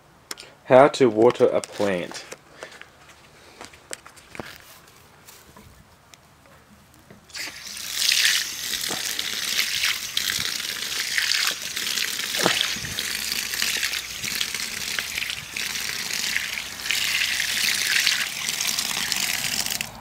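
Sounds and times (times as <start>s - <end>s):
liquid pouring and splashing: 7.3s - 19.9s.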